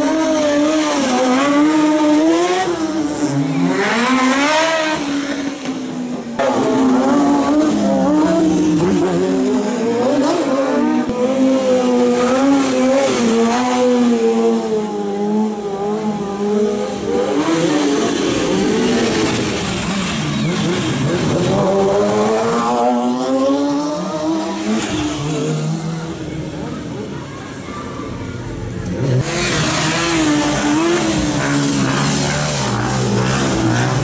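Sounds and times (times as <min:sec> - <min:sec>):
motorcycle engines revving: 0:00.0 - 0:34.0.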